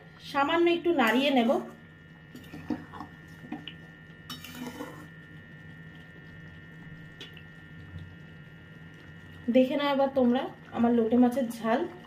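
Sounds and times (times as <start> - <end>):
faint steady hum: 0.0 - 12.0
spatula scraping metal pan: 4.3 - 5.1.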